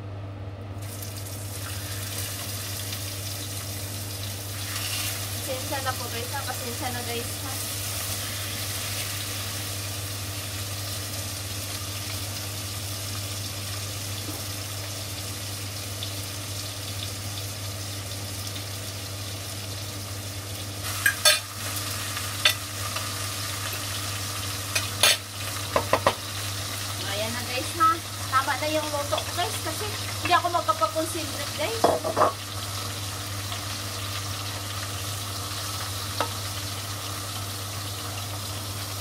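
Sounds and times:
meat sizzling in frying pan: 0.8 - 39.0
spatula knocking against pan: 25.7 - 26.2.

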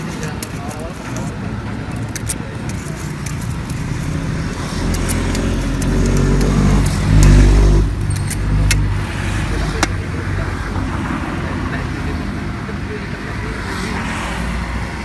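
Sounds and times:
metal scoop clicking against cups: 0.0 - 8.9
vehicle passing on road: 0.0 - 15.0.

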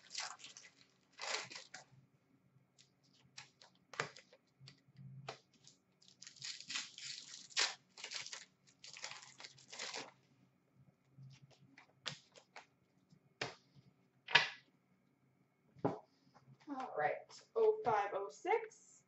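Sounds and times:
foil wrapper rustling and tearing: 0.0 - 1.9, 5.3 - 10.2.

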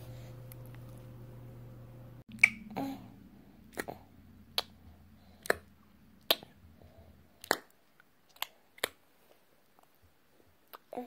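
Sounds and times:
steady low hum: 0.0 - 8.0
baby mouth clicks and smacks: 3.7 - 4.8, 5.4 - 6.6, 7.4 - 9.0.

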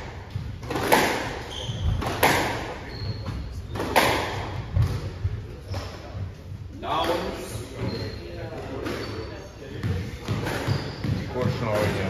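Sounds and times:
squash ball cracks: 0.0 - 1.4, 2.0 - 2.7, 3.8 - 5.0.

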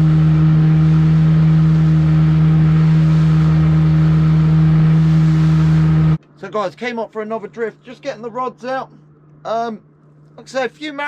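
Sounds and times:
boat engine droning: 0.0 - 8.9.

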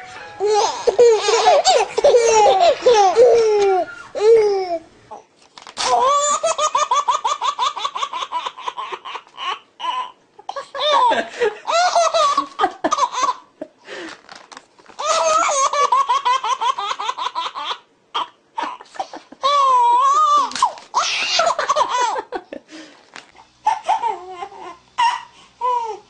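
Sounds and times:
baby belly-laughing: 0.4 - 4.8, 5.8 - 13.5, 15.0 - 22.3, 23.6 - 26.0
second baby laughing: 0.4 - 4.8, 5.8 - 13.5, 15.0 - 22.5, 23.6 - 26.0
baby squealing: 15.0 - 18.8, 19.4 - 21.9.

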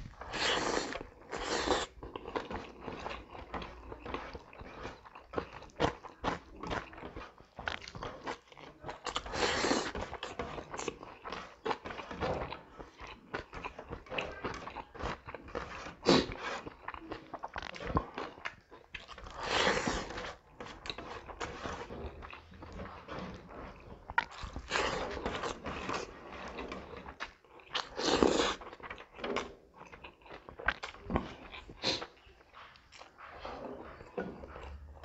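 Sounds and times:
wet chewing and lip-smacking: 0.0 - 35.0.

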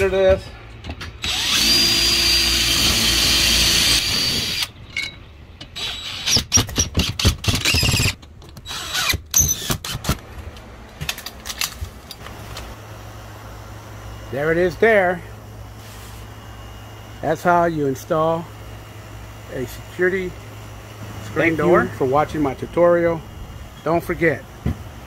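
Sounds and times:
drill drilling into steel: 1.2 - 4.8, 5.8 - 10.0
drill short bursts: 1.2 - 4.9, 5.7 - 10.2, 12.8 - 25.0.

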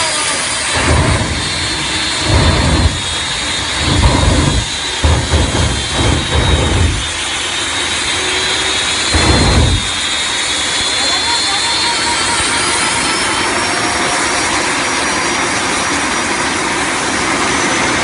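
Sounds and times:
jet engine high-pitched whine: 0.0 - 18.0
afterburner deep blasts: 0.6 - 10.9.

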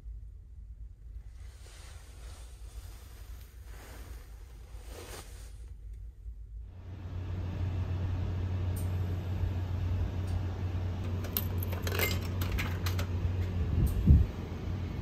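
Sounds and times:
steady low hum: 0.0 - 15.0
coins clinking in machine: 11.1 - 13.2.

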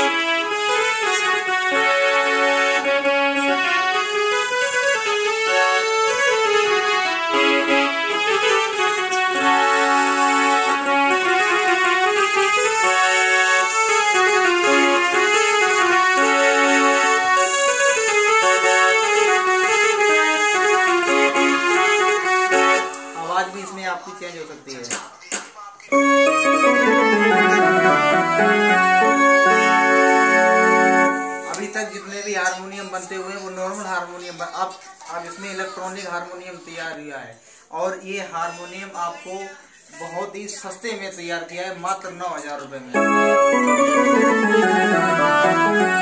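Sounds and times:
electronic keyboard melody: 0.0 - 24.0, 25.9 - 33.8, 42.9 - 46.0.

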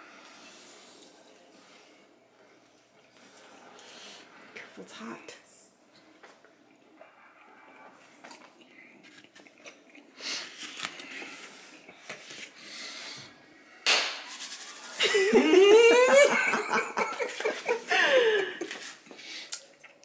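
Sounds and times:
person laughing: 14.9 - 18.9.

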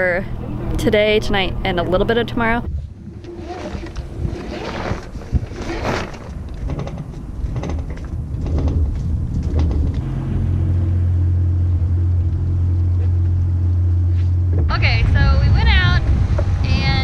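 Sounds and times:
low rumble and hum: 0.0 - 17.0
sail cloth flapping: 2.7 - 10.1.

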